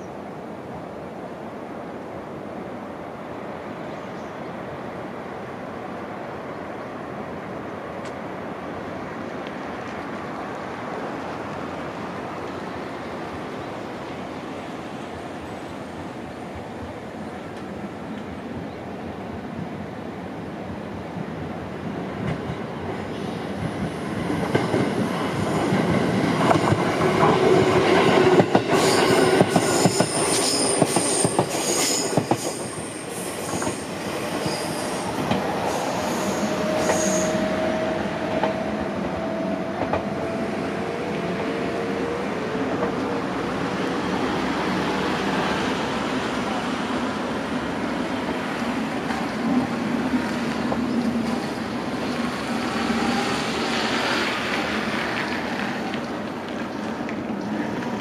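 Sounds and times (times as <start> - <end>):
train rumble: 20.7 - 58.0
high wheel squeal: 28.8 - 38.2.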